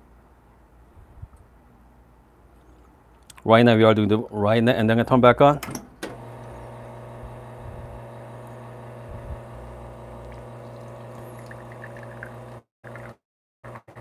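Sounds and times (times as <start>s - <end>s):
espresso machine pump humming: 6.1s - 14.0s.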